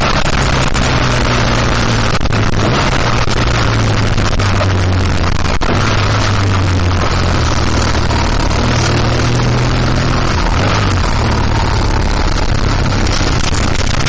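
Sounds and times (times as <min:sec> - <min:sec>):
motorcycle engine running: 0:00.0 - 0:14.0
wind noise on microphone: 0:00.0 - 0:14.0.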